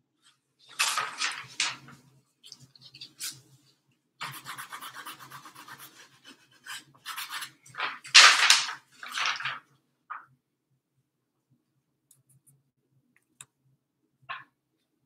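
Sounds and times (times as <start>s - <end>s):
paintbrush scrubbing canvas: 4.2s - 7.8s.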